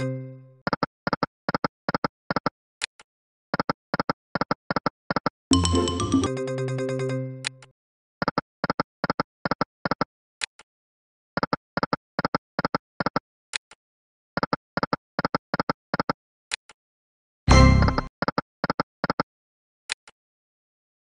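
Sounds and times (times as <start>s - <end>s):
slot machine music sting: 5.5s - 7.3s, 17.5s - 18.1s.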